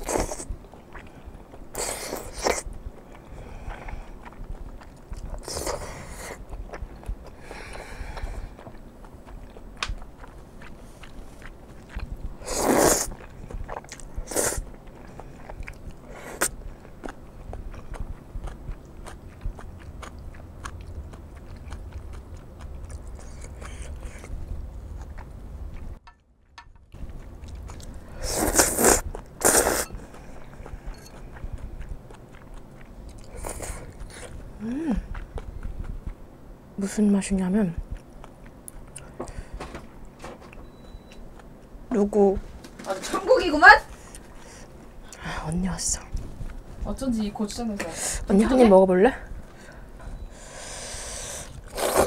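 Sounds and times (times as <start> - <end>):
wet chewing: 0.0 - 26.1, 26.9 - 42.3, 49.2 - 52.0
noodle slurps: 12.4 - 14.6, 28.1 - 30.0, 50.4 - 52.0.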